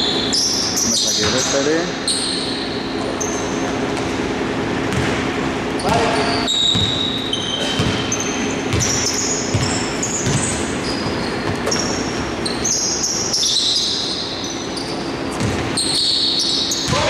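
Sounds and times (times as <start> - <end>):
sneakers squeaking on floor: 0.0 - 17.0
basketball dribbling on wooden floor: 6.7 - 7.0, 8.7 - 11.8.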